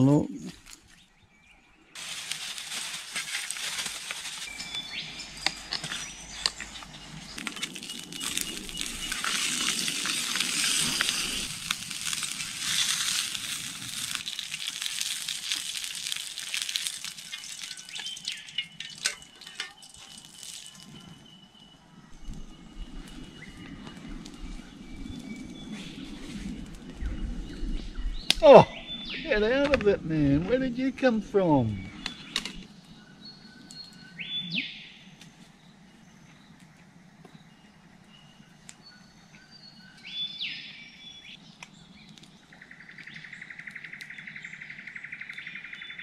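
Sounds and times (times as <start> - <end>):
campfire crackling and popping: 2.0 - 30.9, 41.3 - 46.0.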